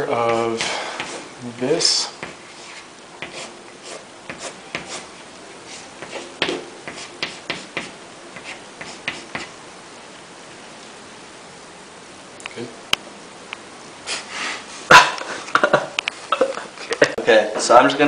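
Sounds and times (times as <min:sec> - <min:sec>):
chalk writing on blackboard: 0:00.2 - 0:01.3, 0:02.2 - 0:09.5.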